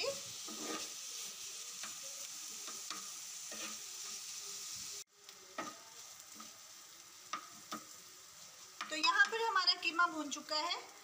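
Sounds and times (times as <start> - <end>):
metal spatula scraping: 0.0 - 4.4
meat sizzling on a griddle: 0.0 - 11.0.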